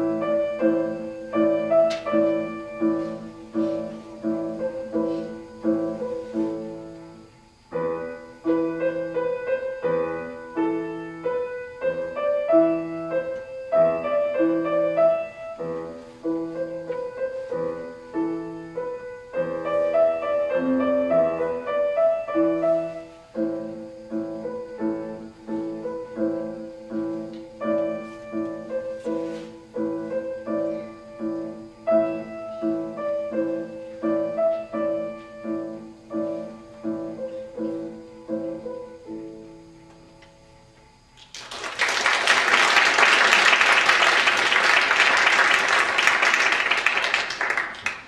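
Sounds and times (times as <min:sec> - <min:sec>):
grand piano playing: 0:00.0 - 0:40.2
audience applauding: 0:41.2 - 0:48.0.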